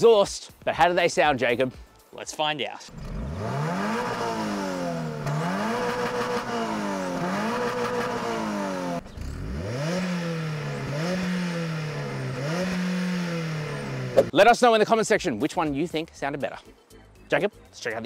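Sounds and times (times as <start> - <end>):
car engines revving: 2.9 - 14.3
engine throttle blips: 2.9 - 14.3.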